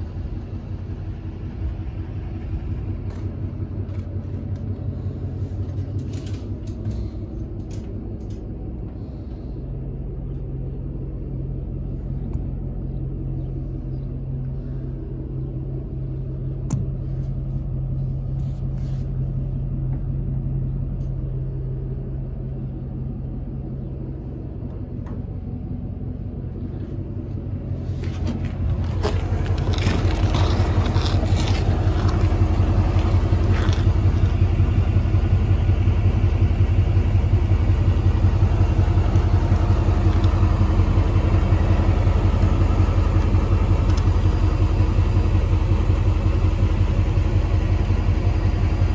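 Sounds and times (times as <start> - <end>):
truck engine idling: 0.0 - 48.9
footsteps: 27.8 - 34.4
knocks and clatters of handling: 28.0 - 34.3.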